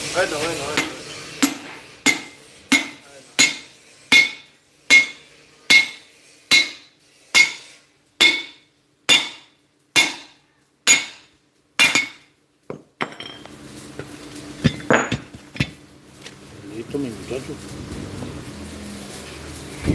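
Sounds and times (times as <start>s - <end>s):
hammer clinking: 0.8s - 12.3s
sledgehammer striking steel: 0.8s - 12.3s.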